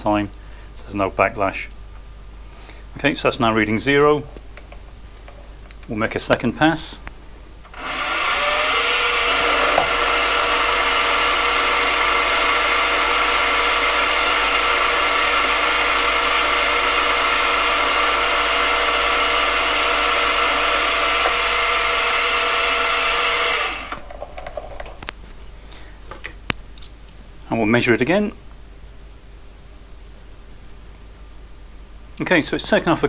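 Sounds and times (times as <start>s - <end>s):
lathe motor whining: 7.7s - 24.1s
lathe running down: 7.7s - 24.1s.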